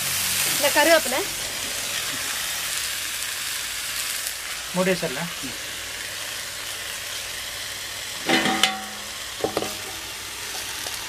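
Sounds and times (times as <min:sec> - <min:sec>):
meat sizzling on a griddle: 0:00.0 - 0:11.0
metal bowl clanking: 0:08.2 - 0:09.8.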